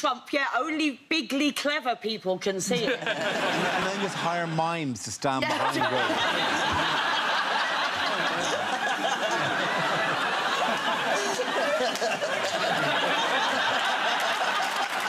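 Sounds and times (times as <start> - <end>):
audience laughing: 2.7 - 4.6, 5.4 - 15.0.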